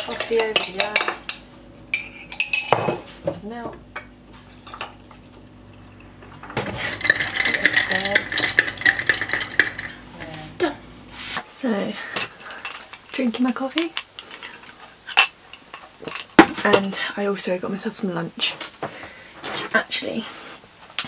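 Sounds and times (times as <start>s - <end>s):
spoon stirring clinking glass: 0.0s - 3.0s, 6.8s - 10.0s
coffee pouring: 4.6s - 10.1s
ice cubes clinking in a glass: 6.9s - 10.0s.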